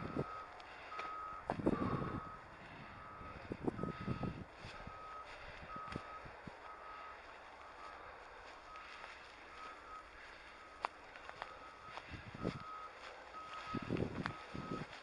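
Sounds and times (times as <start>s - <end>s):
electronic beeping: 0.0s - 8.0s, 11.4s - 15.0s.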